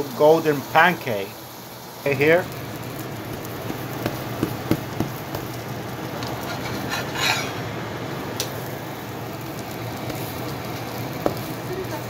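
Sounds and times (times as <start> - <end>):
pancake sizzling in frying pan: 0.0 - 12.0
spatula scraping pan: 6.3 - 7.6
spatula clicking on pan: 10.0 - 11.5.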